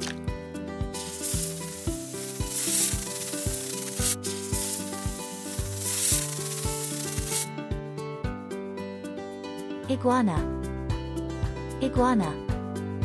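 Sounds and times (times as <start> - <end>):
background music with beat: 0.0 - 9.7
snake hissing: 0.9 - 7.5.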